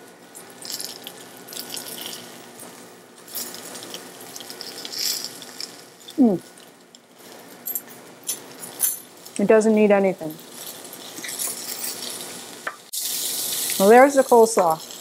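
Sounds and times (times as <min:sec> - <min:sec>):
coleslaw crunching being chewed: 0:00.5 - 0:02.5, 0:03.3 - 0:06.9.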